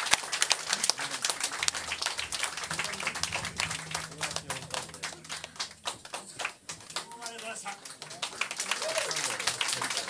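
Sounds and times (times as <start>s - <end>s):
small audience clapping: 0.0s - 10.0s
low steady hum: 0.5s - 7.8s.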